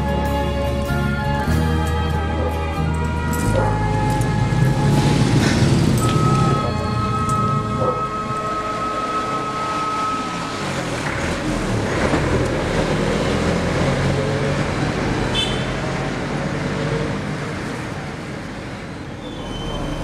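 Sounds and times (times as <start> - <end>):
vehicles passing: 0.0 - 20.0
steady tone: 3.4 - 11.6.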